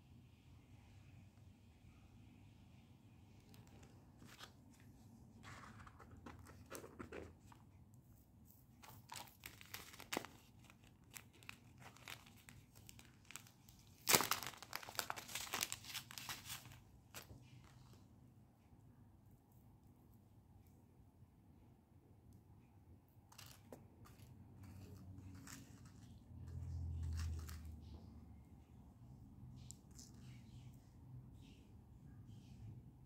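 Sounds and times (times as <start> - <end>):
packaging crinkling and tearing: 8.8 - 17.4, 27.0 - 27.7.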